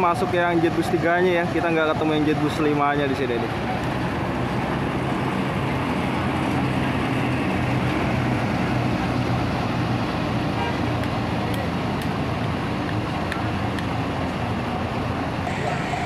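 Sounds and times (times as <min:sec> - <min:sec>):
bus engine driving off: 0:00.0 - 0:16.0.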